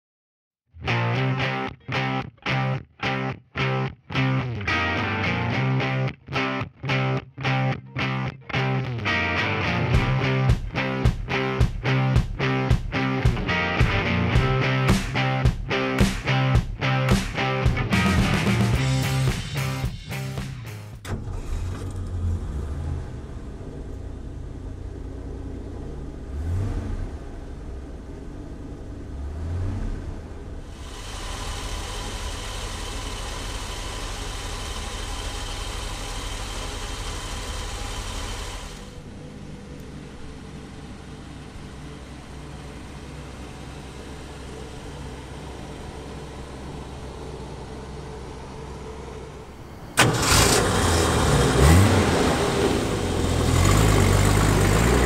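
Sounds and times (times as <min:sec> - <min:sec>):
engine idling and revving: 0:08.6 - 0:55.0.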